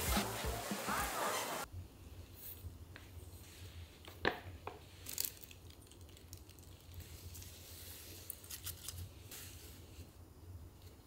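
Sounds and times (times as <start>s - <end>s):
powder rustling and crackling: 4.9s - 10.1s.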